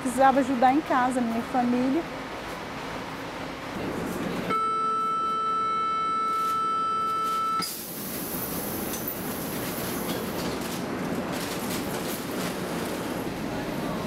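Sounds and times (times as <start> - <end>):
train carriage running noise: 0.0 - 14.0
train humming at platform: 0.0 - 14.0
door-closing warning tone: 4.5 - 7.9.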